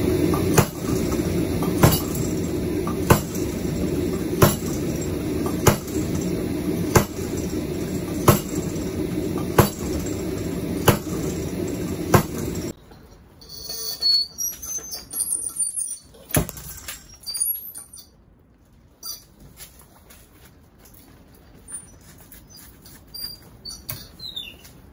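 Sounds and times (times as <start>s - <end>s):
loud steady rushing noise: 0.0s - 12.7s
power hammer striking hot steel: 0.0s - 12.8s
light high squeaks and rattles: 1.8s - 19.8s, 21.4s - 24.9s.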